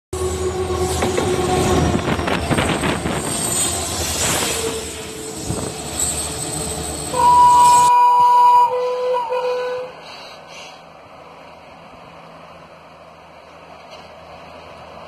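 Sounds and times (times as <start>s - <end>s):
diesel locomotive engine whine: 0.1s - 15.0s
two-note horn tone: 7.2s - 9.9s.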